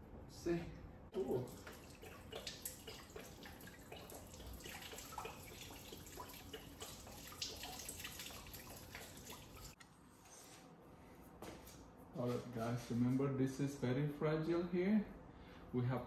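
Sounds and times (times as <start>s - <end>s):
coolant dripping and trickling: 1.2s - 9.8s.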